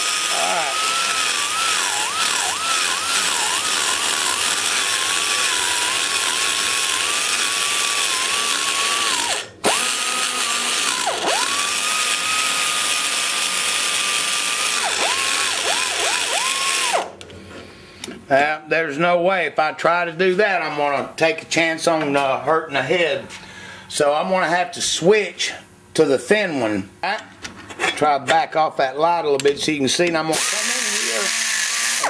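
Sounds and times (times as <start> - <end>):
die grinder whining on metal: 0.0 - 17.2, 30.3 - 32.0.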